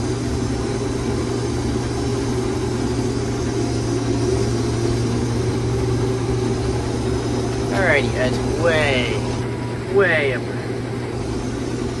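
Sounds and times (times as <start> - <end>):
combine harvester engine hum: 0.0 - 12.0.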